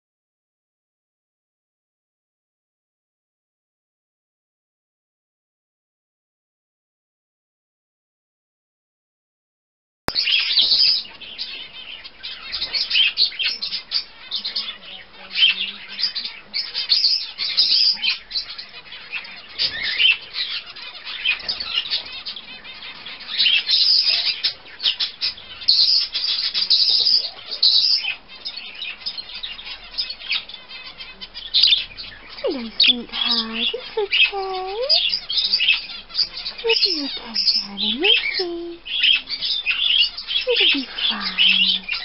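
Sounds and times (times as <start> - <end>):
budgerigar chattering and chirping: 10.1 - 42.0.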